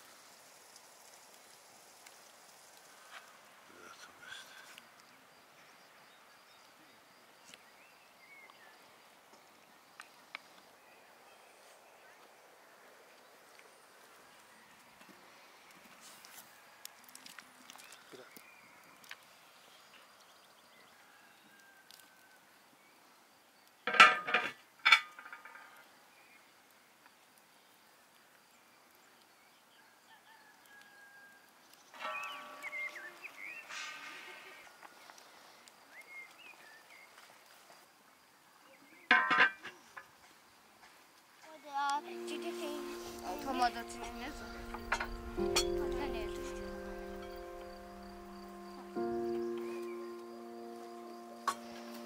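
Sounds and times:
faint outdoor ambience: 0.0s - 52.0s
metal lid clanking on pot: 23.9s - 25.3s
bird chirp: 31.9s - 34.0s, 41.7s - 52.0s.

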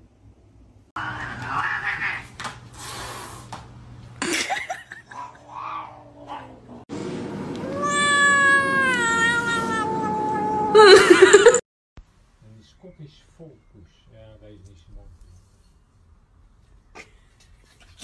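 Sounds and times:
cat meowing: 7.6s - 11.0s.

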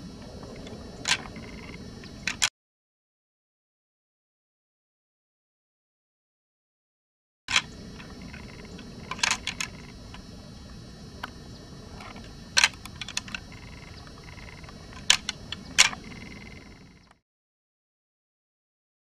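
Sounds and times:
low rumble and hiss: 0.0s - 2.5s, 7.5s - 17.2s.

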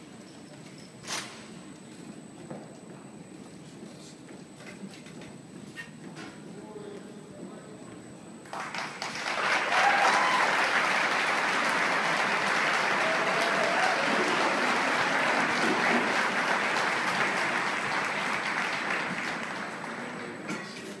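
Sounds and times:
audience applauding: 8.5s - 20.4s.

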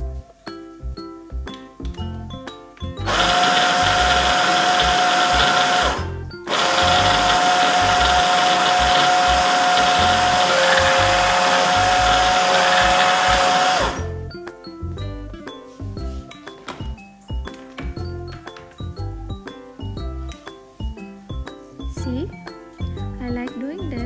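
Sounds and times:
hand blender chopping vegetables: 3.0s - 14.1s.

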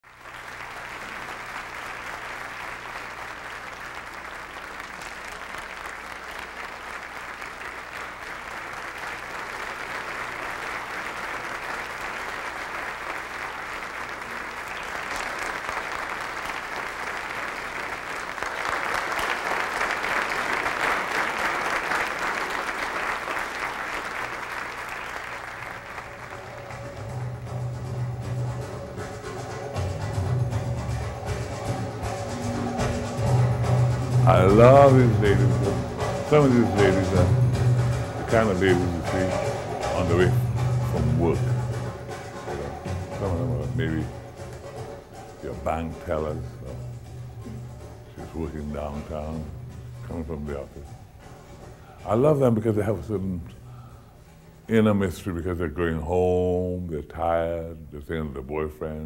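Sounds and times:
crowd applauding: 0.0s - 50.1s.

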